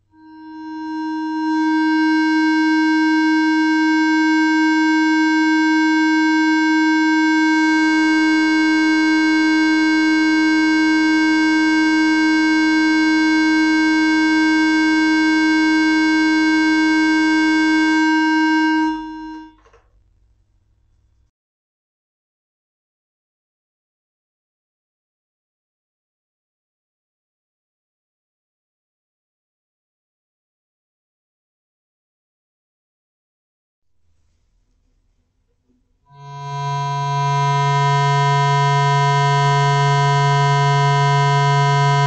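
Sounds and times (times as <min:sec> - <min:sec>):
steady pure test tone: 0:00.1 - 0:19.8, 0:36.1 - 0:42.0.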